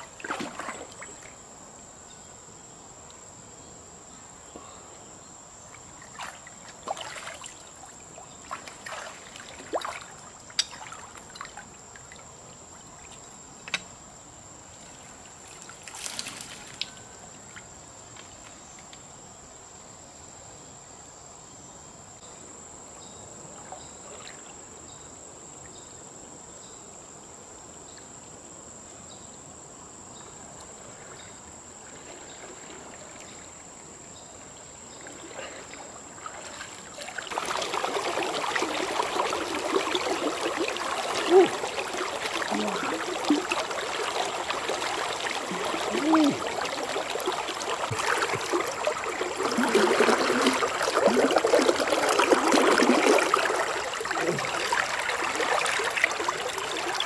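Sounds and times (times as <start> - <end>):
river water splashing: 0.0 - 1.5, 5.7 - 13.2, 14.8 - 17.7, 30.5 - 57.0.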